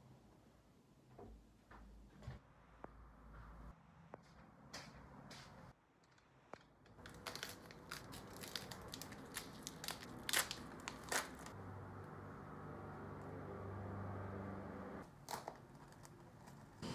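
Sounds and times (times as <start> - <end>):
foil pack tearing and crinkling: 7.0 - 11.6.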